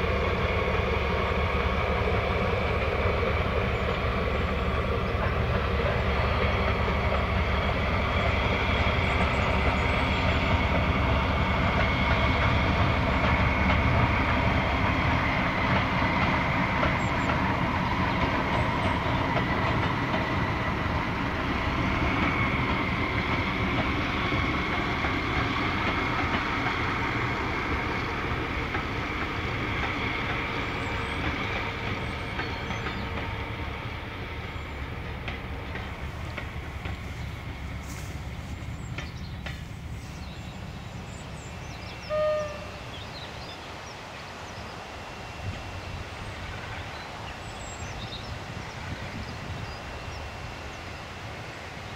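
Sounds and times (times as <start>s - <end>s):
coaches rolling on rails: 0.0s - 51.9s
diesel locomotive engine running: 0.0s - 51.9s.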